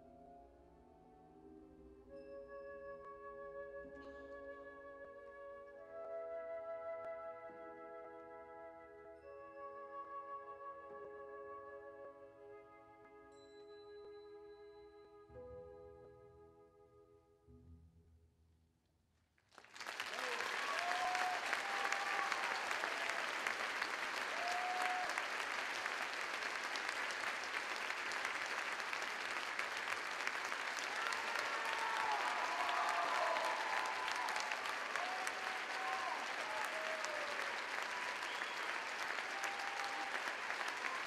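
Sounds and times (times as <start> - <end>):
audience applauding: 19.5 - 41.0
crowd shouts: 20.1 - 25.3, 30.7 - 41.0.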